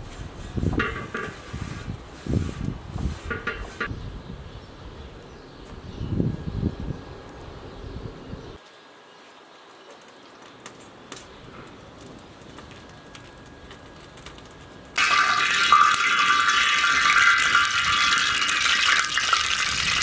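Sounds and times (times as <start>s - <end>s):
faint clicks of hot oil: 8.6s - 20.0s
vegetables sizzling in oil: 14.8s - 20.0s.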